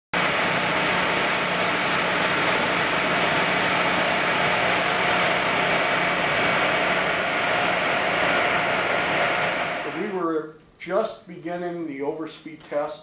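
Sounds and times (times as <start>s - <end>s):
machinery rushing noise: 0.2s - 10.3s
faint machinery hums: 0.2s - 13.0s.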